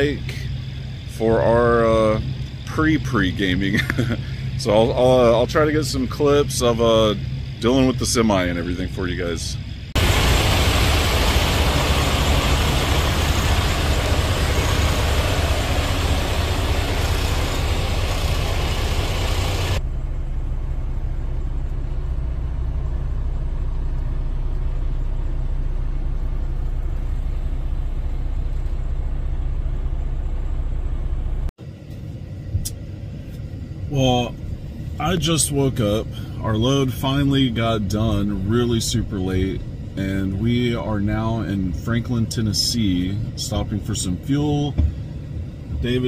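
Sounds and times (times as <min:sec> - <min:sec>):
diesel truck engine idling: 0:00.0 - 0:31.5
loud even hiss: 0:09.9 - 0:19.8.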